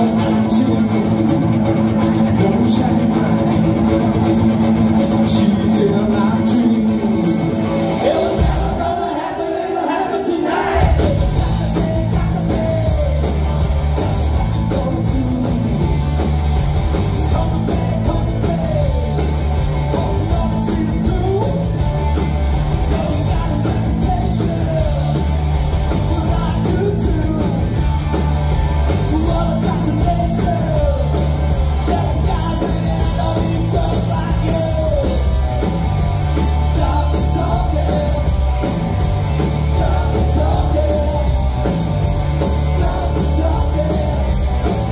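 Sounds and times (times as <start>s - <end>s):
rock band playing: 0.0s - 44.9s
person singing: 5.1s - 16.1s, 17.2s - 21.9s, 28.9s - 35.8s, 36.4s - 38.4s, 39.4s - 41.6s, 42.3s - 44.9s.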